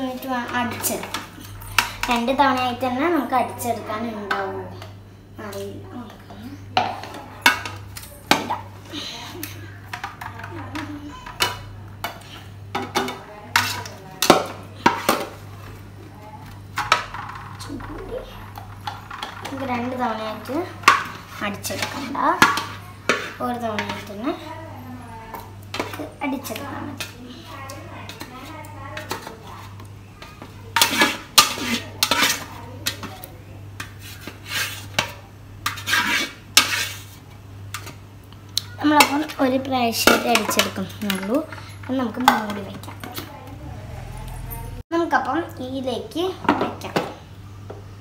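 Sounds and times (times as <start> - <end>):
spoon scraping metal pan: 18.8 - 24.4, 30.7 - 33.2, 33.8 - 37.2.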